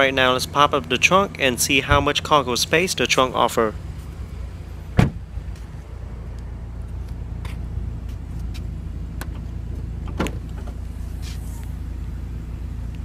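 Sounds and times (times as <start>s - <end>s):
steady low hum: 0.0s - 13.0s
car door shutting: 4.9s - 5.3s, 8.4s - 11.8s.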